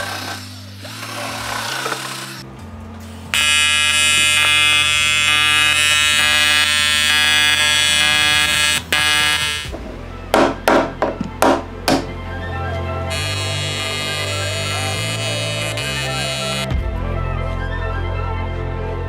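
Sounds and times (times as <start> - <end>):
welding arc buzzing: 3.3 - 9.7, 13.1 - 16.7.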